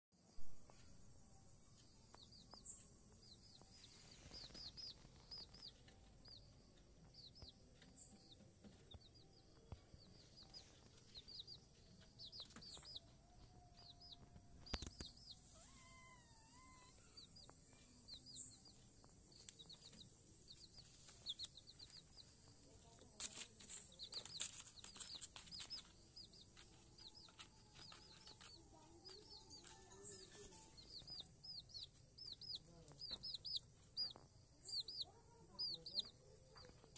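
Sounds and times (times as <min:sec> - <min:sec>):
baby chicks peeping: 0:01.6 - 0:36.9
rustling: 0:19.0 - 0:34.3.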